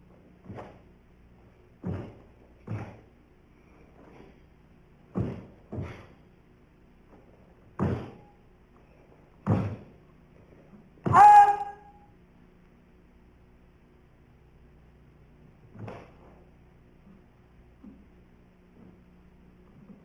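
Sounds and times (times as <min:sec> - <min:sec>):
bare feet stamping on wooden floor: 0:01.8 - 0:03.1, 0:05.1 - 0:06.1, 0:07.7 - 0:08.2, 0:09.4 - 0:09.9.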